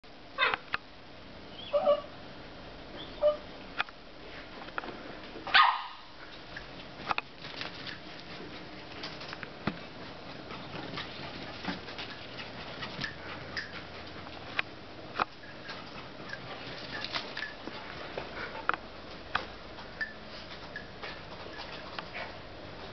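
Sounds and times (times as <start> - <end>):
small dog barking: 5.5 - 6.2.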